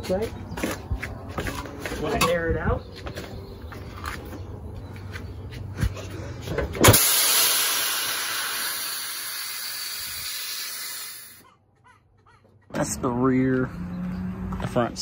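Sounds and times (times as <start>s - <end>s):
air suspension valves hissing: 6.8s - 11.4s.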